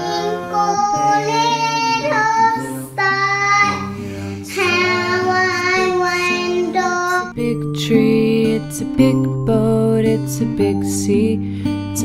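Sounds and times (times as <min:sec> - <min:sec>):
high voice singing: 0:00.0 - 0:07.4
instrumental accompaniment: 0:00.0 - 0:12.0.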